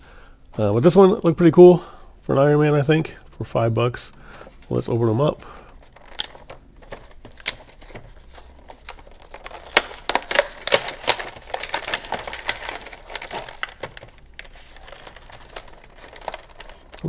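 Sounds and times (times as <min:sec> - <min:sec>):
plastic packaging crackling: 0:04.2 - 0:17.0.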